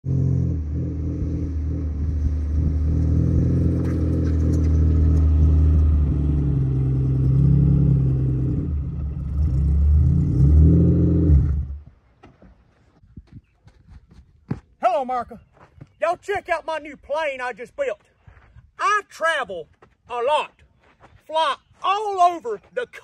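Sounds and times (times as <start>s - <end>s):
car engine revving: 0.0s - 11.8s.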